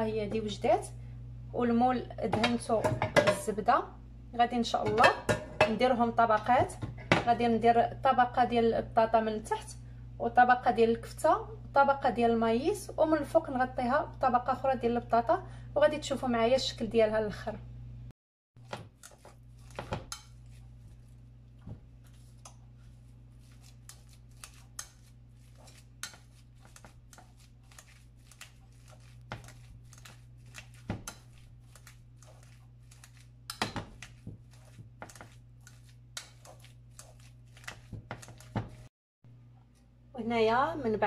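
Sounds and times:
steady low hum: 0.0s - 18.1s
potato masher squelching: 18.6s - 38.9s.

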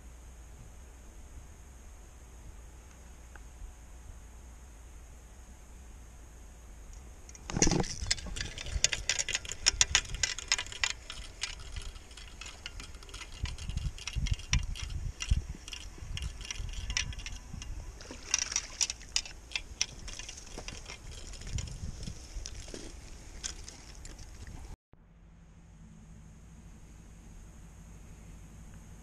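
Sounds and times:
handling knocks and rustling: 7.3s - 24.8s
fishing reel clicking: 7.6s - 22.6s.

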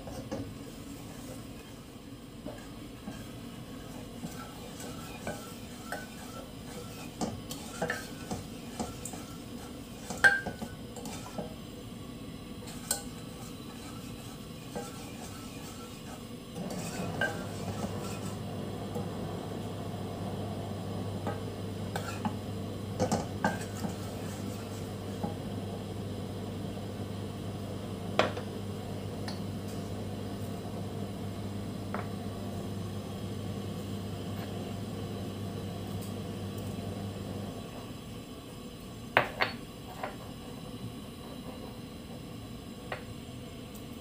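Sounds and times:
wooden spoon stirring in saucepan: 0.0s - 11.9s, 12.6s - 19.6s, 21.2s - 25.4s.

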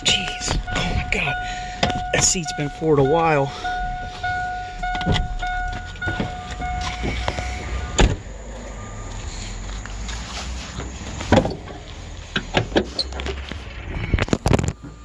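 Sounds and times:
steady low rumble: 0.0s - 15.0s
car door shutting: 4.1s - 8.3s
hood clunks and clicks: 4.2s - 8.2s, 10.0s - 13.6s.

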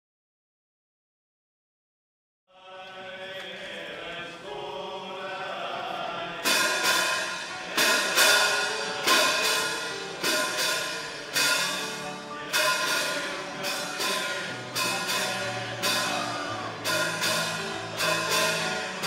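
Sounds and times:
choir-like chords: 2.5s - 19.0s
loud crashing percussive hits: 6.4s - 19.0s.

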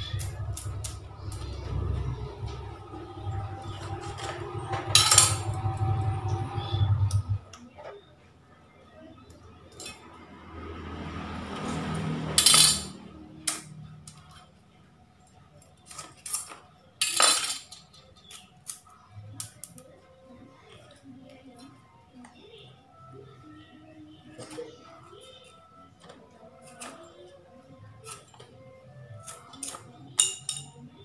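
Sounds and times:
low hum: 0.0s - 7.7s.

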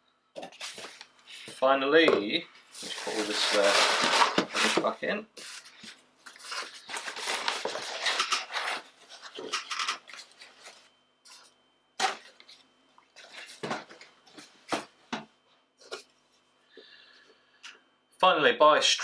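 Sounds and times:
paper rustling and crumpling: 2.8s - 11.4s.

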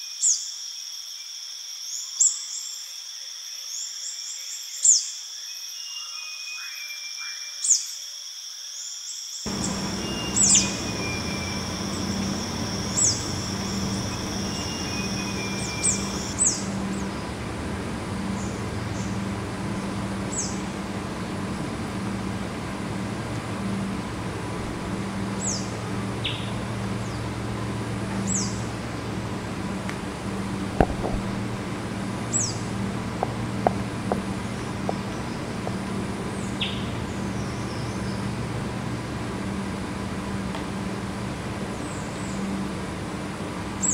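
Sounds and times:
steady high tone: 9.5s - 35.6s
steady low hum: 9.5s - 43.9s.

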